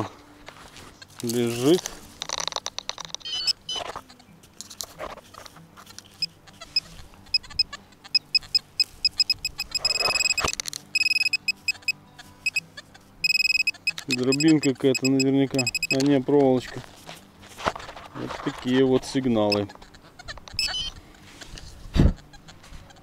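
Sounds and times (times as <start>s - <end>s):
metal detector probe beeping: 2.3s - 3.9s, 6.1s - 12.6s, 13.2s - 16.8s, 19.4s - 19.7s, 20.5s - 21.0s.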